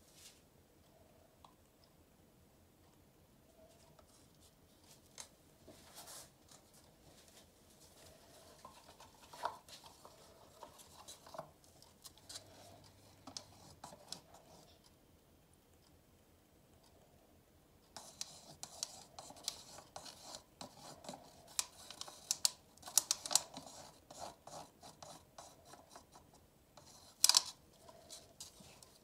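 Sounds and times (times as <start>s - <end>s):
light clicks and scrapes of handling: 3.6s - 15.0s, 17.9s - 29.0s.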